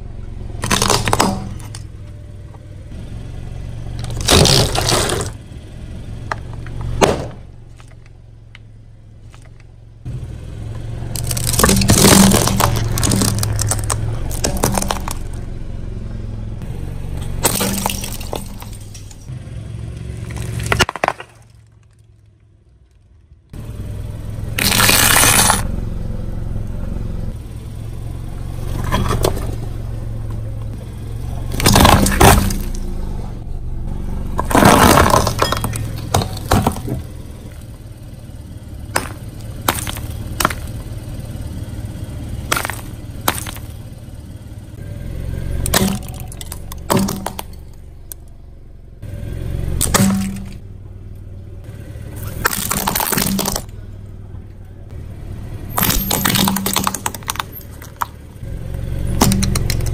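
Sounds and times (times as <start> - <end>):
car engine humming: 0.0 - 59.9
tyre crushing brittle objects: 0.6 - 1.8, 4.0 - 5.4, 11.1 - 15.4, 17.4 - 19.3, 20.0 - 23.0, 24.6 - 25.6, 31.5 - 32.9, 34.4 - 37.7, 38.9 - 41.0, 42.4 - 43.9, 45.6 - 47.8, 49.8 - 50.6, 52.1 - 53.8, 55.7 - 58.2, 59.1 - 59.9.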